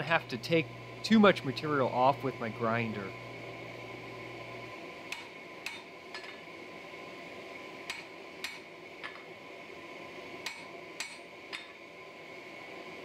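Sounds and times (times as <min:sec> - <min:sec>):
steady hum: 0:00.0 - 0:13.0
hammer striking steel on anvil: 0:05.1 - 0:06.4, 0:07.9 - 0:09.3, 0:10.4 - 0:11.8.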